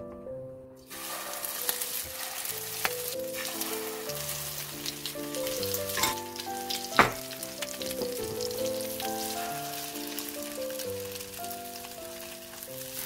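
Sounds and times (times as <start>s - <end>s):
tofu sizzling in oil: 0.8s - 13.0s
sharp knock: 7.0s - 7.2s.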